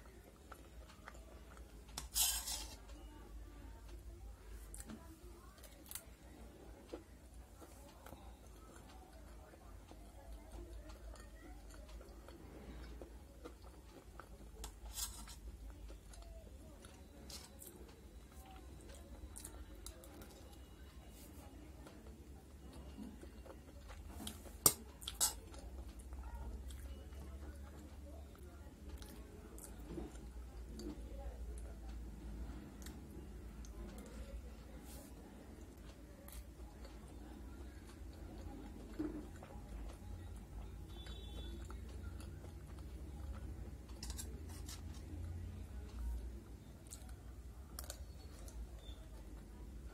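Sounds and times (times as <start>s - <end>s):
low steady hum: 0.0s - 49.9s
soft eating clicks: 0.0s - 49.9s
spoon scraping steel plate: 2.0s - 2.9s, 14.9s - 15.4s
person chewing pasta: 6.8s - 31.0s, 32.5s - 49.9s.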